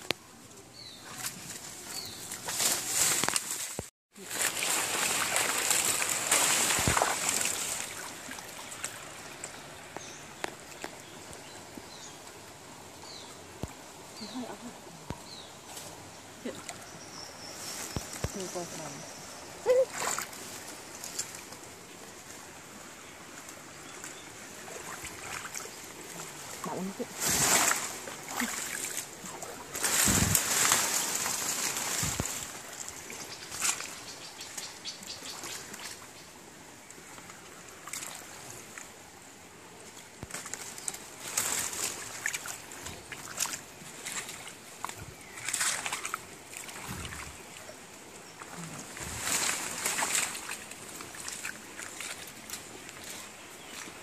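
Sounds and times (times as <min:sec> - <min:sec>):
shallow stream rushing: 0:01.0 - 0:54.0
feet splashing while wading: 0:01.1 - 0:09.4, 0:19.6 - 0:21.7, 0:24.0 - 0:34.0, 0:41.3 - 0:47.8, 0:48.4 - 0:54.0.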